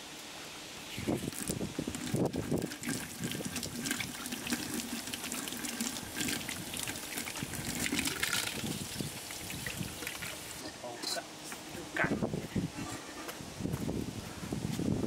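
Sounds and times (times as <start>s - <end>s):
water splashing into a wok: 1.2s - 10.6s.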